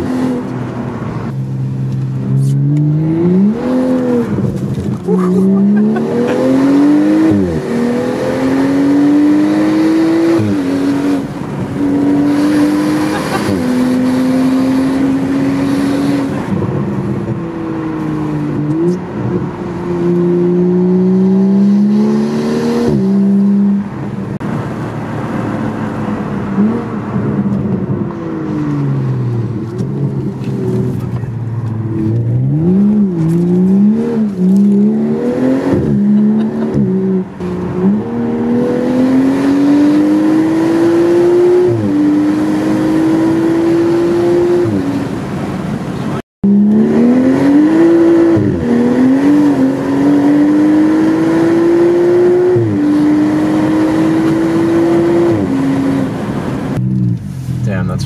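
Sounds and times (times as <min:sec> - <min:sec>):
car engine revving while driving: 0:00.0 - 0:58.0.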